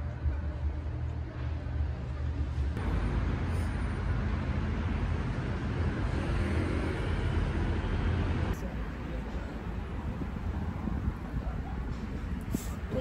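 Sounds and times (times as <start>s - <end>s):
road traffic rumble: 0.0s - 13.0s
street hiss: 12.0s - 13.0s.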